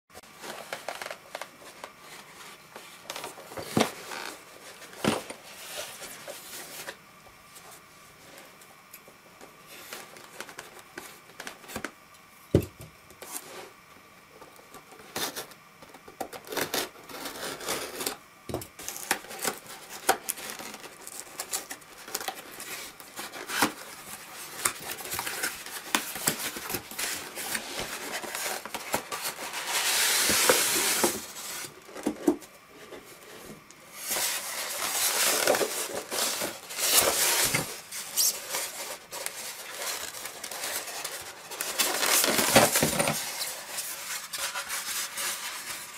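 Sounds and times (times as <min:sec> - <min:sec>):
scissors cutting packing tape: 0:16.3 - 0:18.2
cardboard flaps tearing open: 0:18.8 - 0:32.4, 0:34.0 - 0:45.9.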